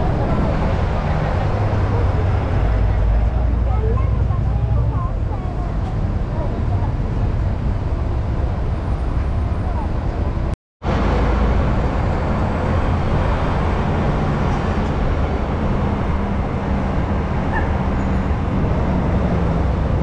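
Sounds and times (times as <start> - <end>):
moving bus rumble: 0.0 - 20.0
street traffic: 0.0 - 20.0.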